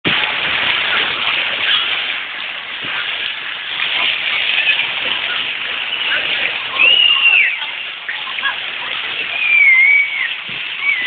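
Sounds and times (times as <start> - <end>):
crowd talking indistinctly: 0.1 - 11.0.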